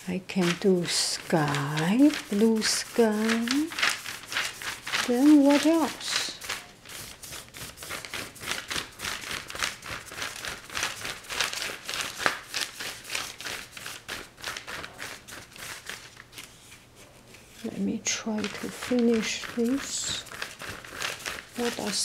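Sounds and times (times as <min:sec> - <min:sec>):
paintbrush scratchy strokes: 0:16.5 - 0:22.0.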